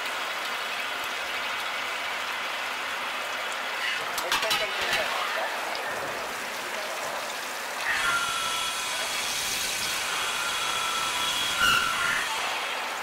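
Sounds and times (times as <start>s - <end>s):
coolant splashing: 0.0s - 13.0s
drill cutting whine: 7.8s - 13.0s.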